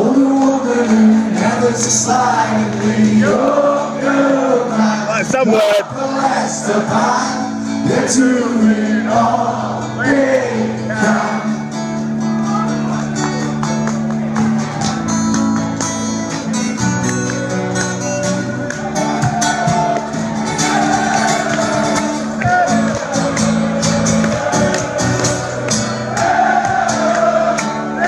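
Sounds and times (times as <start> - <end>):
man singing: 0.0 - 11.5
strummed acoustic guitar: 0.0 - 28.0.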